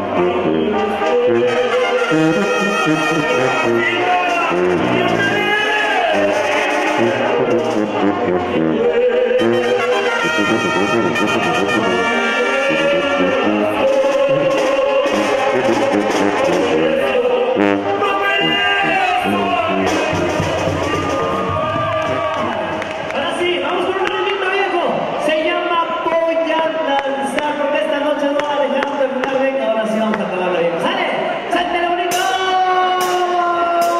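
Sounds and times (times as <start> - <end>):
drums: 0.0 - 8.8, 11.1 - 18.0, 18.8 - 23.0, 32.1 - 33.9
men singing into microphones: 0.0 - 22.2
brass section playing: 0.0 - 23.2.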